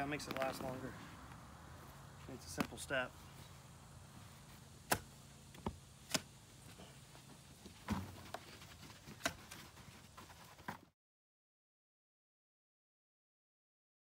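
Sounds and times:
low steady hum: 0:00.0 - 0:10.7.

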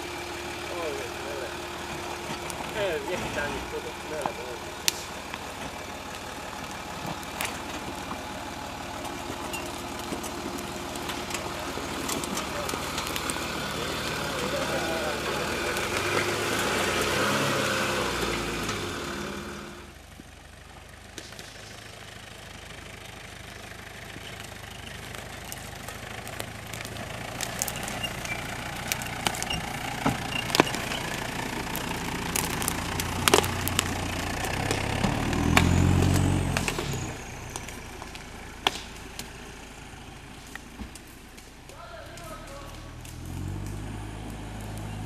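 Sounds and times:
off-road engines running: 0:00.0 - 0:45.0.

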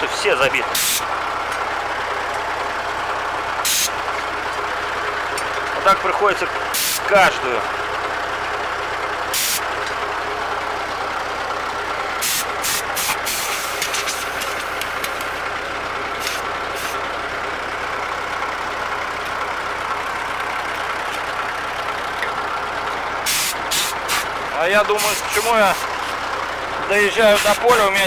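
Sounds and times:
engine idling: 0:00.0 - 0:28.0
compressed air blasts: 0:00.8 - 0:01.0, 0:03.6 - 0:03.9, 0:06.8 - 0:07.0, 0:09.4 - 0:09.6, 0:12.2 - 0:14.5, 0:16.2 - 0:17.0, 0:23.2 - 0:24.3.

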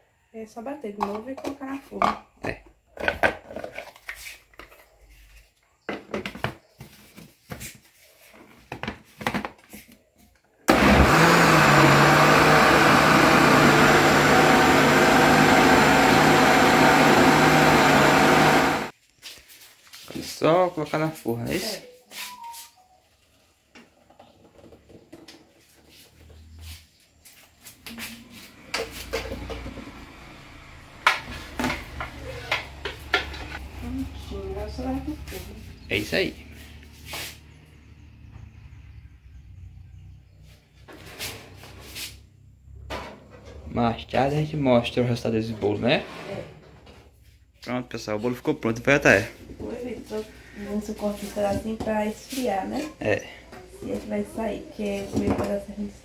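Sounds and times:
electric blender running: 0:10.7 - 0:18.9, 0:28.5 - 0:34.2.

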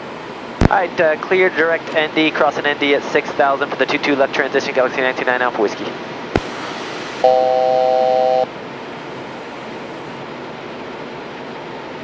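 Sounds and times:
cockpit air and engine hiss: 0:05.7 - 0:07.3, 0:08.5 - 0:10.2.

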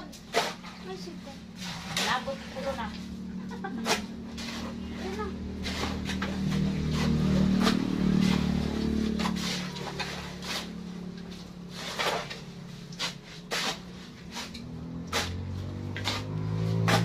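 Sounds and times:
vehicle engine humming past: 0:02.6 - 0:17.0
shovel scraping into sandy soil: 0:11.7 - 0:17.0.

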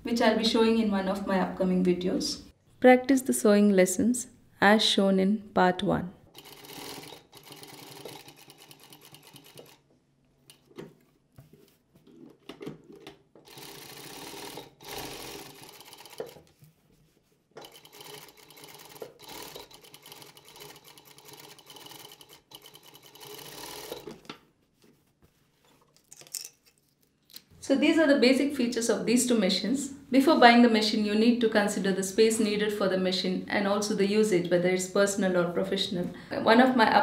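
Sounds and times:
sewing machine stitching: 0:06.4 - 0:09.8, 0:12.8 - 0:16.5, 0:17.6 - 0:24.3.

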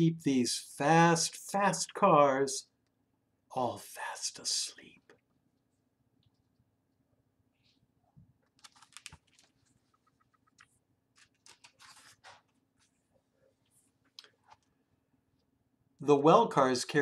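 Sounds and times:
book pages turning: 0:08.5 - 0:13.0.

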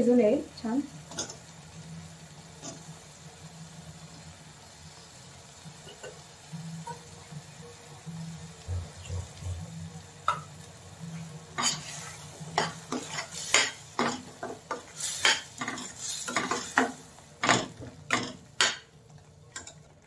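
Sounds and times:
metal spoon scraping a steel pan: 0:11.6 - 0:14.2.

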